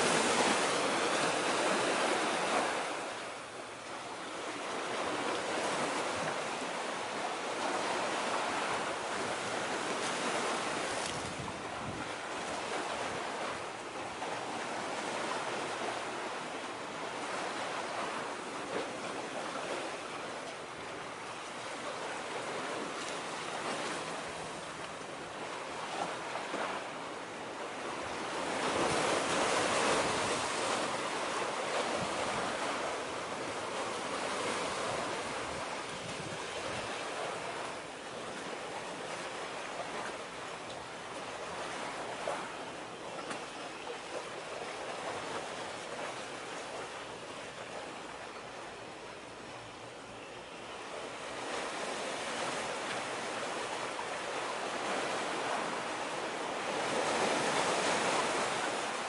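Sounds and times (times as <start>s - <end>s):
small waves washing on shore: 0.0s - 59.0s
wind: 0.0s - 59.0s.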